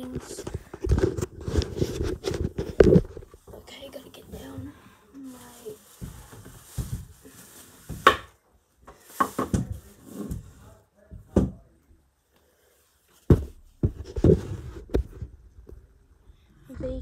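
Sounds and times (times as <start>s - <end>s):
objects knocking on hard surface: 7.9s - 10.4s, 11.1s - 11.7s, 13.3s - 15.3s.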